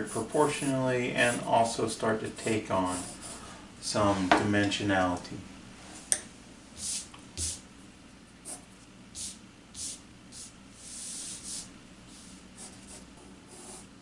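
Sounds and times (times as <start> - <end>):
pencil sketching on paper: 9.2 - 14.0.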